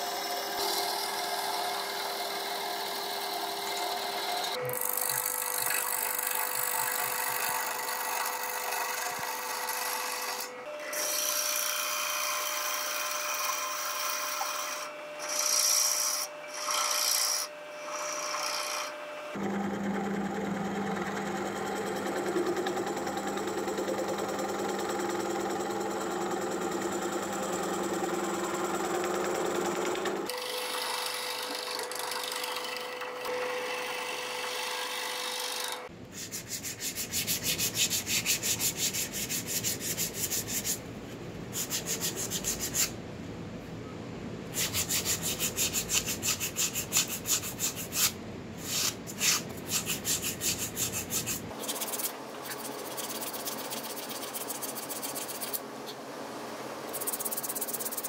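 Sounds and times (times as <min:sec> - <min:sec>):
wood lathe humming: 0:00.0 - 0:35.9
sandpaper rubbing wood: 0:36.1 - 0:40.8, 0:41.5 - 0:42.9, 0:44.6 - 0:55.6
gouge scraping wood: 0:36.2 - 0:40.8, 0:44.6 - 0:55.6.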